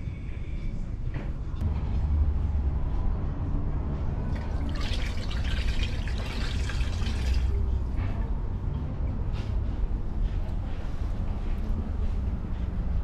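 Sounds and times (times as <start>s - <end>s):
broth pouring and splashing: 4.3s - 7.7s.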